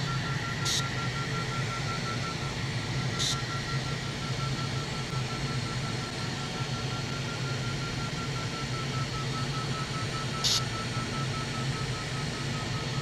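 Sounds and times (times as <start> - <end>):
pulsing high electronic tone: 0.0 - 8.4.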